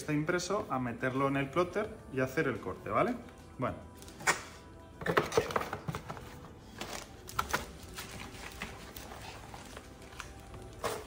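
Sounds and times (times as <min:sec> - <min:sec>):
cardboard and paper rustling: 0:05.0 - 0:11.0.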